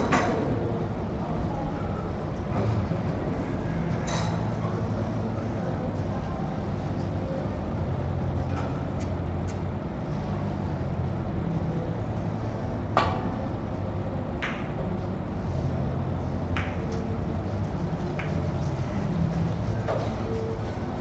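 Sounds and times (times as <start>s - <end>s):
steady low hum: 0.0s - 21.0s
cue tip striking ball: 16.5s - 17.0s.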